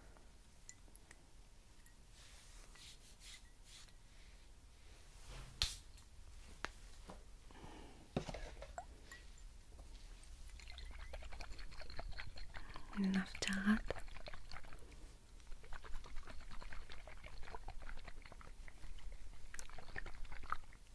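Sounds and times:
soft rustling: 2.1 - 5.6
glass bottles clicking and clinking: 10.6 - 13.6.

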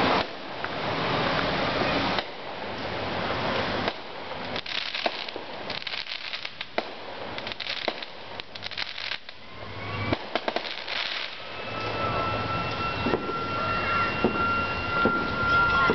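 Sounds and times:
fireworks popping and crackling: 0.0 - 15.9.

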